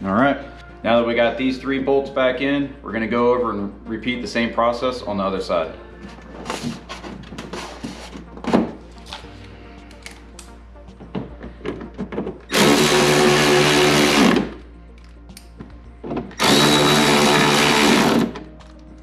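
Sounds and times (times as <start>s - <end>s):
cordless ratchet motor whine: 16.4s - 18.3s.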